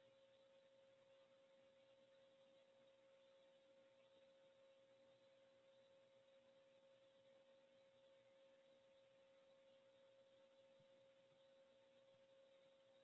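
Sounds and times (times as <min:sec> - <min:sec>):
faint steady tone: 0:00.0 - 0:13.0
low hiss: 0:00.0 - 0:13.0.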